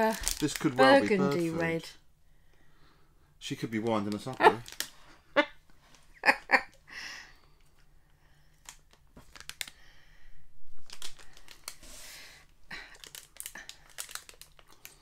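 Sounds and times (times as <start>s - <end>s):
plastic wrapper crinkling: 0.0s - 1.6s, 3.9s - 5.2s, 8.5s - 9.9s, 10.7s - 15.0s.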